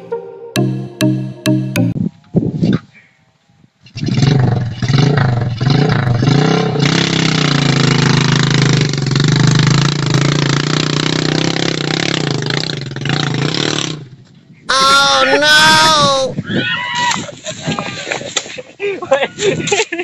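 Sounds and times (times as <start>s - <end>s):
small motorcycle engine under load: 3.8s - 14.2s.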